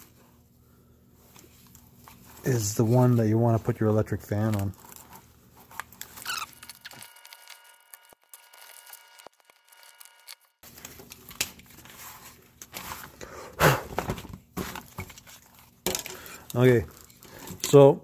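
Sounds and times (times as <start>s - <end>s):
short squeak: 6.2s - 7.0s.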